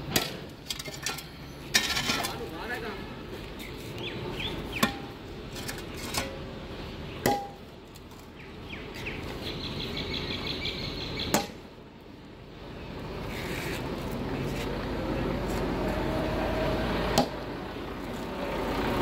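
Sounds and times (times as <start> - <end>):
metal shovel scraping rubble: 0.1 - 2.8, 4.7 - 6.5.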